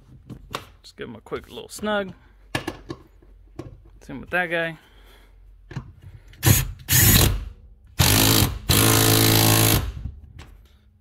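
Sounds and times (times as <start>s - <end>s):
cordless impact tool bursts: 6.4s - 10.0s.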